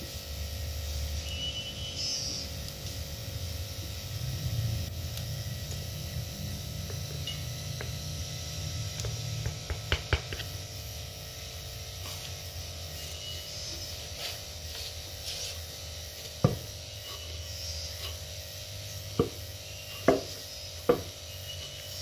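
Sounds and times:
steady low hum: 0.0s - 22.0s
pestle thumping in mortar: 9.0s - 10.5s.

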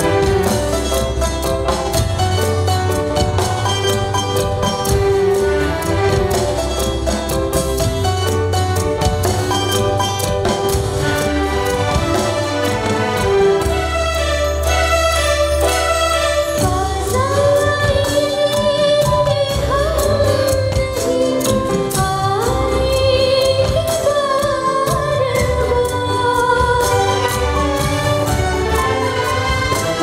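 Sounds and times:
keyboard and rhythm backing: 0.0s - 30.0s
woman singing: 16.4s - 30.0s.

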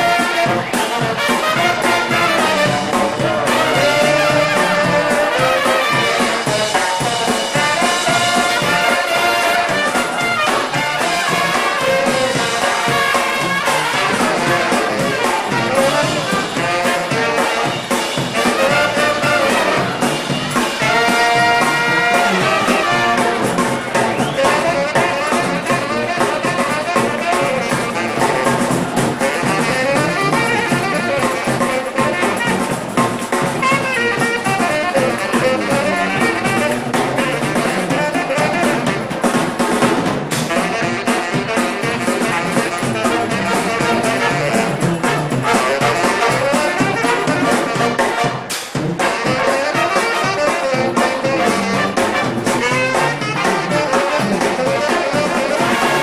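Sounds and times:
live band playing through speakers: 0.0s - 56.0s.

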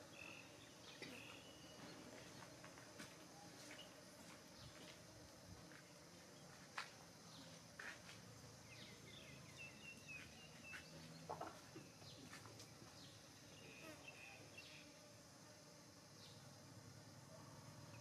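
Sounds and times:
faint high bird chirps: 0.2s - 2.0s, 8.7s - 12.4s.

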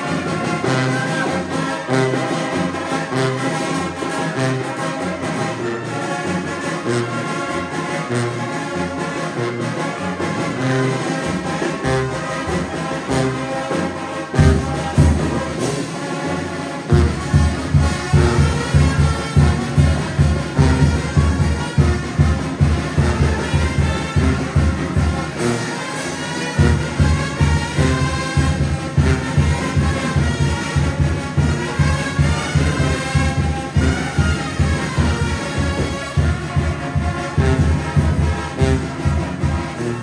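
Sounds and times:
brass: 0.0s - 40.0s
tuba bass line: 0.0s - 40.0s
drum beat: 26.6s - 39.8s.

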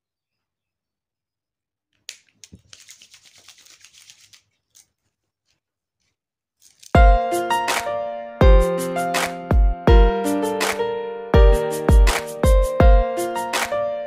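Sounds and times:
hands rubbing together: 2.1s - 5.0s, 6.6s - 7.0s
loud music with heavy beat: 11.4s - 13.0s.

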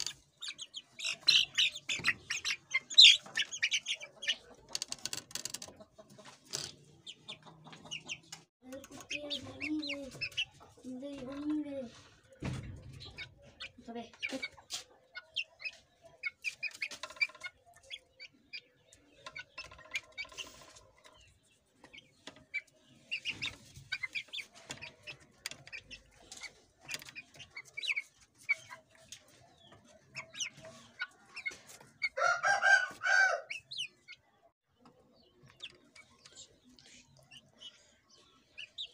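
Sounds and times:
chickens peeping and clucking: 0.0s - 38.9s
chicken drawn-out call: 32.2s - 33.6s.

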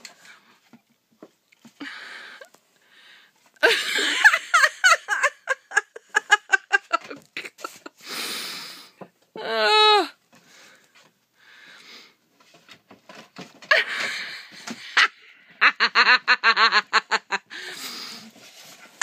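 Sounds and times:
person laughing hard: 3.6s - 8.0s, 13.7s - 17.8s
breathy gasps: 10.4s - 12.2s, 17.5s - 18.4s.

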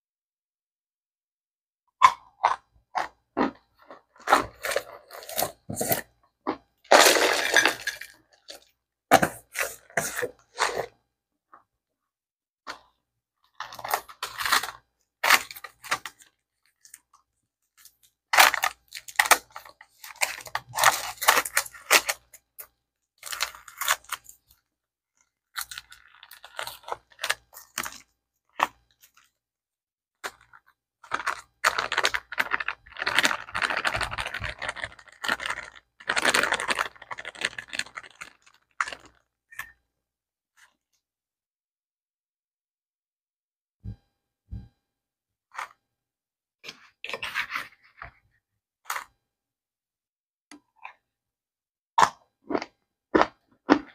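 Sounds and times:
cornstarch crunching: 2.0s - 11.0s, 13.5s - 17.2s, 17.8s - 24.6s, 25.2s - 29.3s, 30.2s - 39.7s
plastic bag crinkling: 6.9s - 8.6s, 17.8s - 22.3s, 25.5s - 28.0s, 30.2s - 39.2s.

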